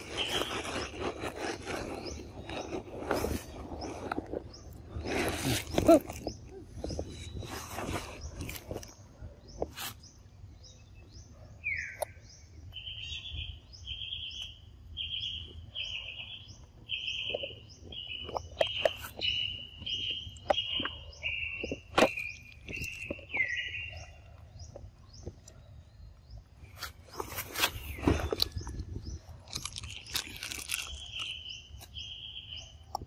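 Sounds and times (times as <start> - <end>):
faint high chirping: 0.0 - 33.0
monkeys chewing with clicks: 28.2 - 31.4.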